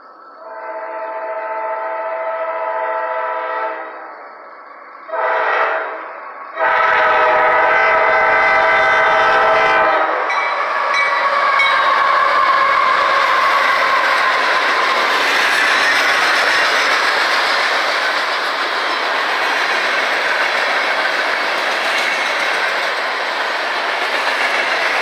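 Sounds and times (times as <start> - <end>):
locomotive horn blasts: 0.4 - 4.0, 5.1 - 6.0, 6.6 - 10.4
locomotive engine and wheels passing: 3.6 - 25.0.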